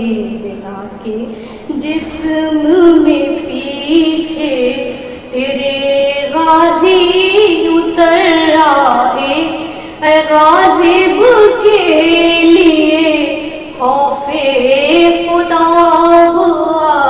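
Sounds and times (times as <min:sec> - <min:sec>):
woman singing a lament: 0:00.0 - 0:17.0.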